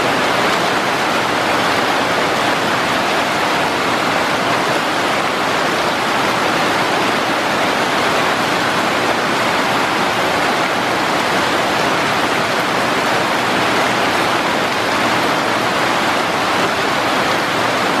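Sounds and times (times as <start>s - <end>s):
rain falling on foliage: 0.0s - 18.0s.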